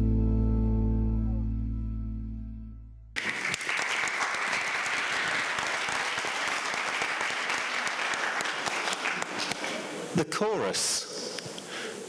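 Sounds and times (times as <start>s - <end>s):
audience applauding: 3.2s - 10.1s.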